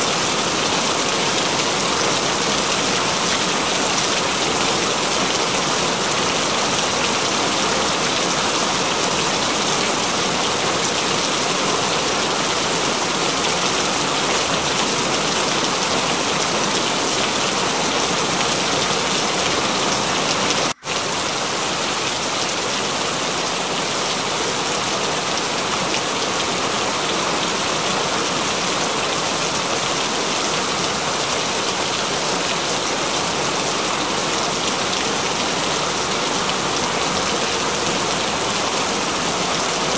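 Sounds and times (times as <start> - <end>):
steady rain: 0.0 - 39.9.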